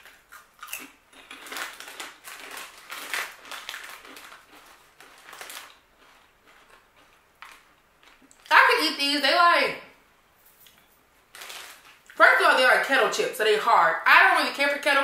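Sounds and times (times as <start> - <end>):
soft chewing: 0.0 - 8.5
potato chips crunching: 0.0 - 8.6, 10.6 - 12.2.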